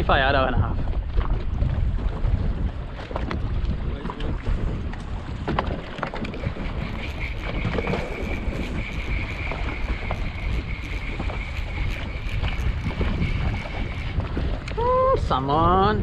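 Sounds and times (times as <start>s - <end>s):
water against boat hull: 0.0s - 15.3s
wind buffeting microphone: 0.0s - 16.0s
fishing reel being cranked: 6.0s - 14.8s
steady high whine: 6.2s - 14.6s.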